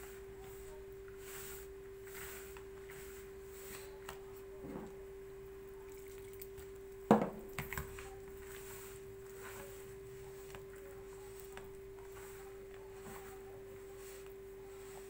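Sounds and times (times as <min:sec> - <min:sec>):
hands rubbing flour in bowl: 0:00.0 - 0:04.6, 0:07.9 - 0:15.0
steady hum: 0:00.0 - 0:15.0.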